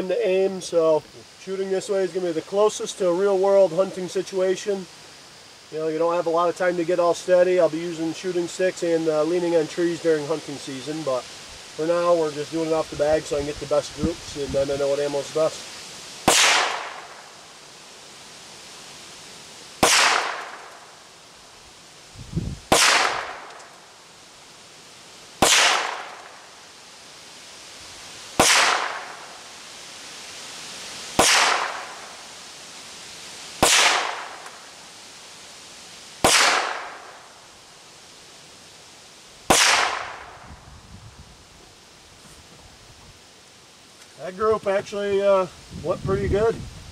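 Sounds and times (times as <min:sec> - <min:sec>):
pistol shots echoing: 0:19.8 - 0:20.6, 0:25.4 - 0:26.3, 0:28.4 - 0:29.2, 0:36.2 - 0:37.0.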